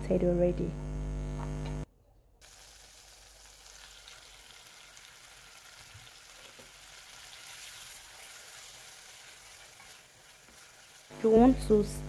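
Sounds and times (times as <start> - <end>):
chicken sizzling in hot oil: 2.4 - 11.8
wooden spoon stirring in wok: 7.4 - 11.1.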